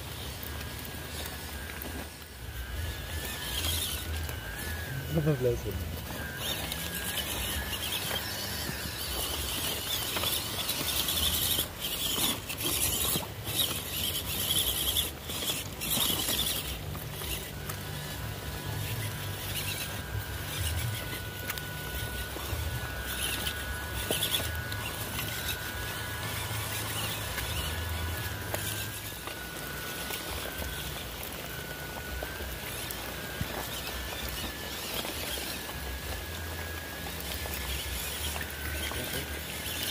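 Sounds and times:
electric motor whine: 0.0 - 39.9
rough hiss and low rumble: 0.0 - 39.9.

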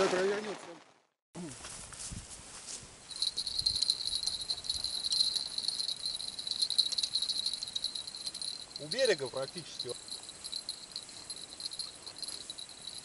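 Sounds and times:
insect chirring buzz: 3.1 - 13.0.

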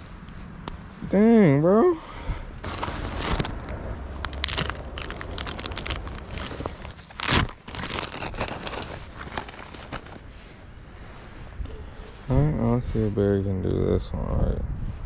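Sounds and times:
clothing rustling on microphone: 2.6 - 13.4.

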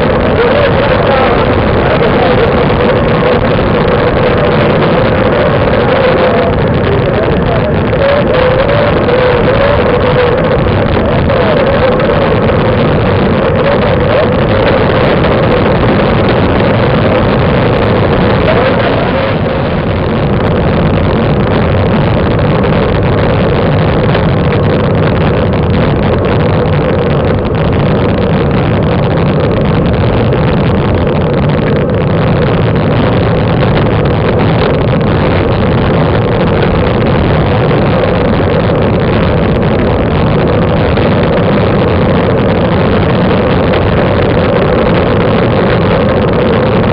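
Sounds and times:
constant drone: 0.0 - 46.9
road rumble: 0.0 - 46.9
wind rush: 0.0 - 46.9.

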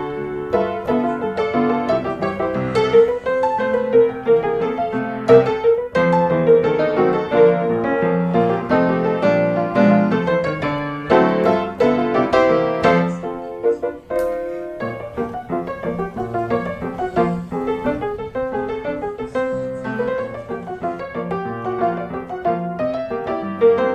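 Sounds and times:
piano music: 0.0 - 23.9.

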